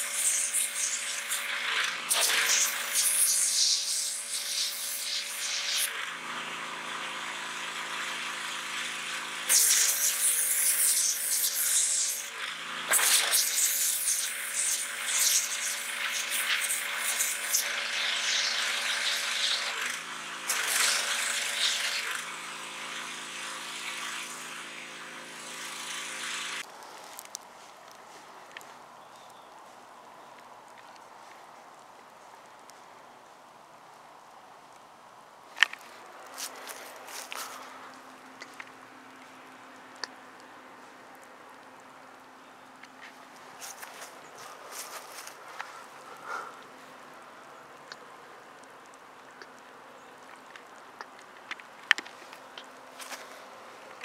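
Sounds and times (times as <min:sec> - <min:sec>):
water jet hissing: 0:00.0 - 0:06.3, 0:08.8 - 0:26.7
pressure washer motor hum: 0:00.0 - 0:26.7.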